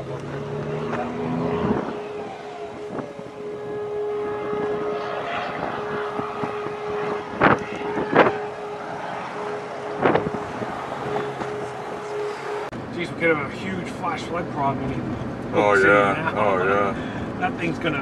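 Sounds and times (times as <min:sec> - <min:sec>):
wind noise on microphone: 0:01.6 - 0:12.0.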